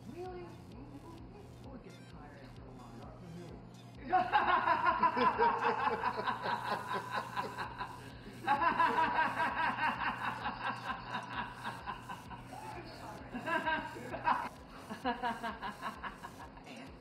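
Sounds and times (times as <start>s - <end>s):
woman laughing hard: 4.0s - 16.7s.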